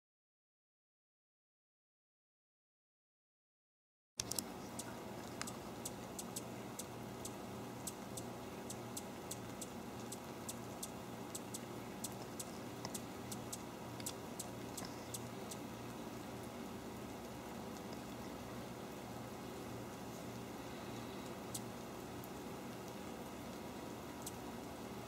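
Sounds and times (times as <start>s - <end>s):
raindrops ticking: 4.2s - 19.6s, 21.2s - 25.0s
light rain hiss: 4.2s - 25.0s.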